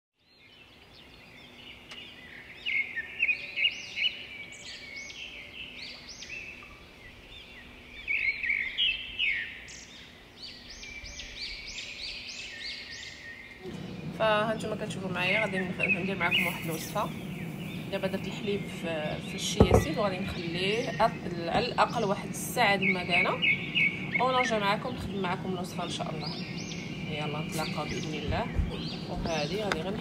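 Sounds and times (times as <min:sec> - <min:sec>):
small birds chirping: 0:00.2 - 0:30.0.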